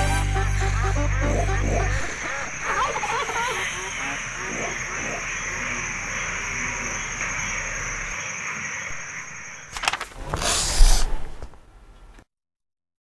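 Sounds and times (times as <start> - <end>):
steady high trill: 0.0 - 8.1
hiss: 1.8 - 5.9, 10.3 - 11.4.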